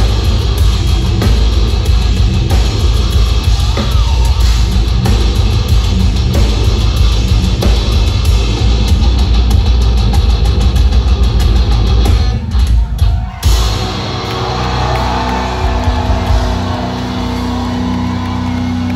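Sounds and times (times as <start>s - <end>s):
heavy metal band playing live: 0.0s - 18.9s.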